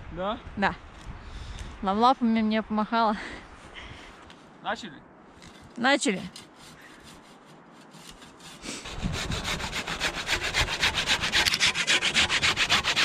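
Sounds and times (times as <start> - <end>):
hand saw rasping through wood: 6.1 - 13.0.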